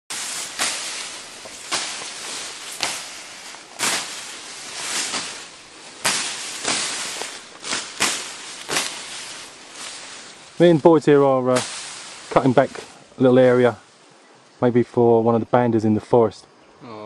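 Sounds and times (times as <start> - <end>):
grass slashing swish and crack: 0.1 - 13.7.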